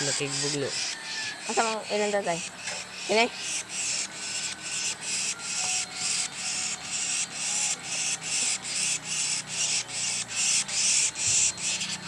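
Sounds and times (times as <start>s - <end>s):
insects buzzing in pulses: 0.0s - 12.0s.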